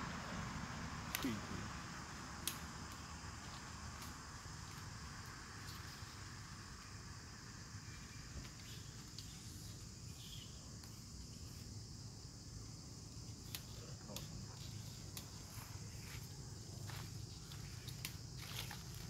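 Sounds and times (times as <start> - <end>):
low outdoor rumble: 0.0 - 9.3
insect chorus drone: 0.0 - 19.0.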